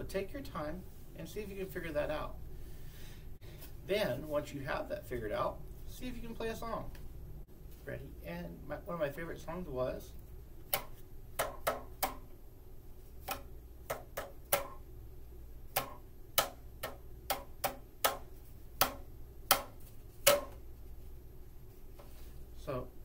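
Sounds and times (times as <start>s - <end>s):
tuned cardboard tubes tapped on table: 18.8s - 20.6s.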